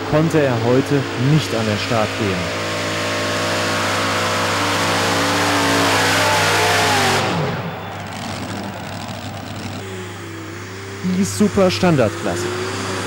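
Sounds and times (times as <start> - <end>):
tractor engines at full throttle: 0.0 - 13.0.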